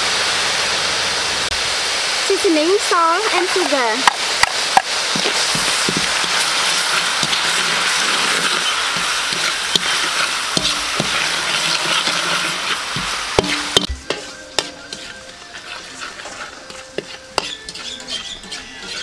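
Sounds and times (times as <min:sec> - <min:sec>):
garlic sizzling in hot oil: 0:00.0 - 0:19.0
metal spatula scraping wok: 0:05.1 - 0:19.0.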